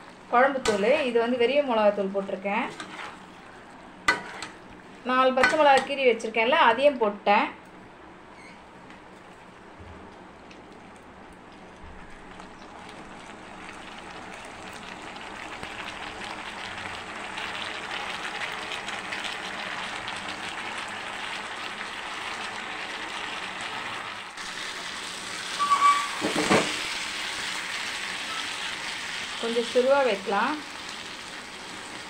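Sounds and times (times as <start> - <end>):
vegetables sizzling in hot oil: 0.0 - 6.2, 12.3 - 32.0
metal spoon stirring and scraping: 2.6 - 3.5, 4.1 - 4.6.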